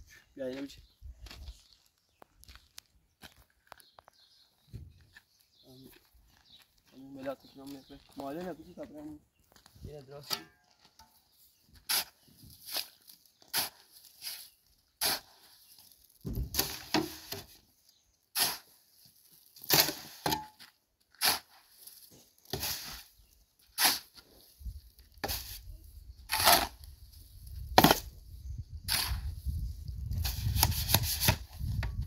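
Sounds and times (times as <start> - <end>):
shovel scraping sand and cement: 10.1 - 17.7, 18.3 - 32.0.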